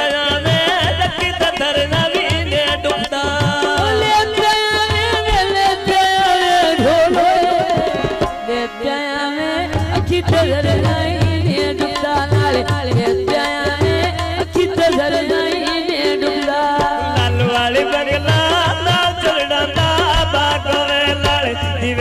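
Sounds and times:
woman singing into a microphone: 0.0s - 21.9s
hand drum beat: 9.8s - 19.2s.

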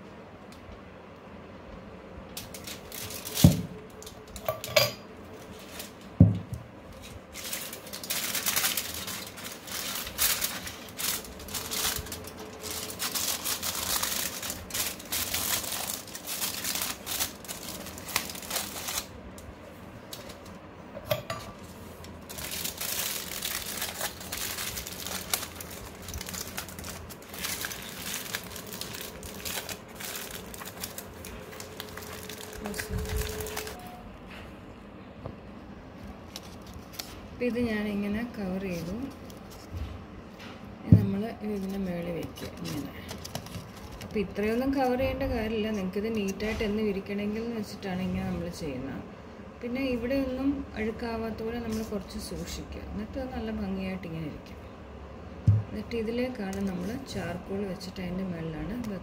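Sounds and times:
aluminium foil crinkling: 2.4s - 4.6s, 5.3s - 6.1s, 6.9s - 20.6s, 21.6s - 33.8s, 36.0s - 37.5s, 38.5s - 39.8s, 41.4s - 47.0s, 51.4s - 52.6s.

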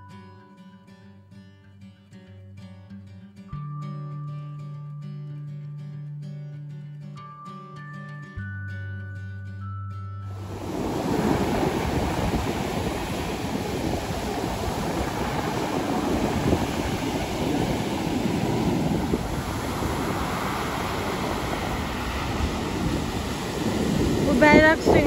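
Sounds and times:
surf breaking on beach: 10.4s - 25.0s.

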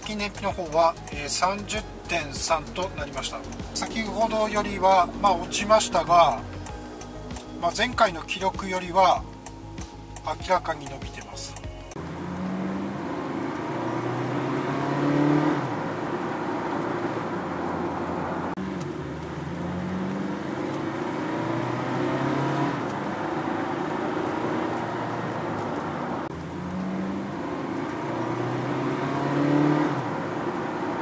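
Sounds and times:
low held notes: 0.0s - 12.0s
car road and drivetrain noise: 0.0s - 31.0s.

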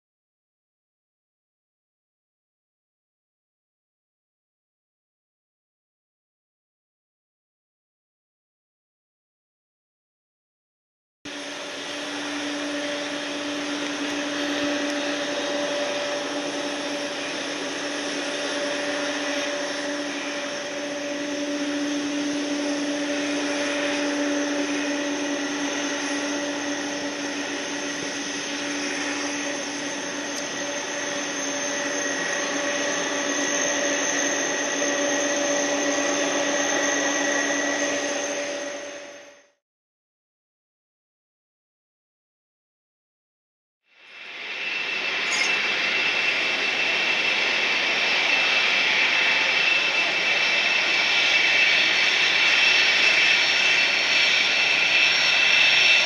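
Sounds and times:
jet engines running: 11.3s - 39.6s, 44.0s - 56.0s.

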